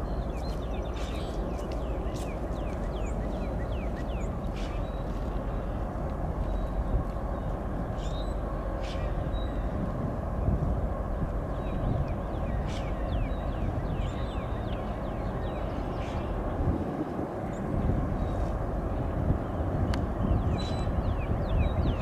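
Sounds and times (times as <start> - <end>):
birds chirping: 0.0 - 9.8
freight train rumbling by: 0.0 - 22.0.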